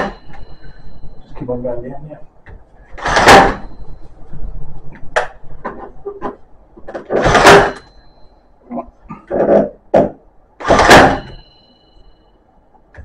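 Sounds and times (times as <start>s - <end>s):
nail gun shot: 3.0s - 3.7s, 7.1s - 7.8s, 10.6s - 11.4s.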